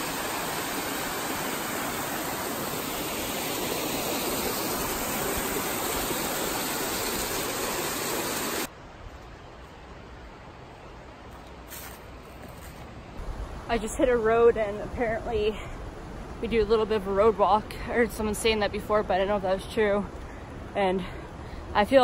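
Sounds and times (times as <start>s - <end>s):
waterfall rushing: 0.0s - 8.7s.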